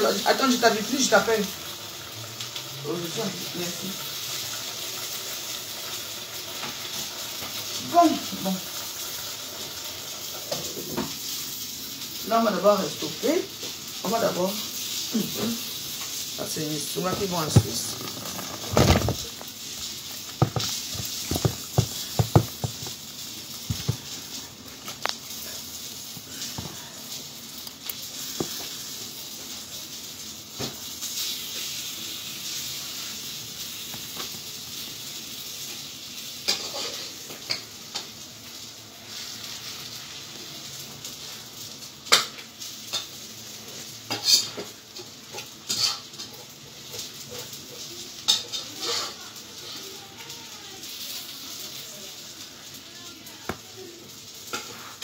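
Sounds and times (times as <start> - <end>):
hot oil sizzling: 0.0 - 55.0
sharp knocks: 20.4 - 22.9.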